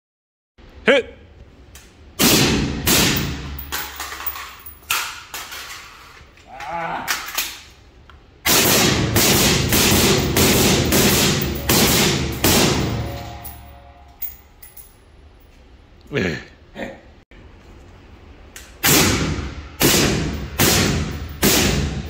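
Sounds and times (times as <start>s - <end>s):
rifle shots with echo: 8.5s - 13.2s, 18.8s - 22.0s.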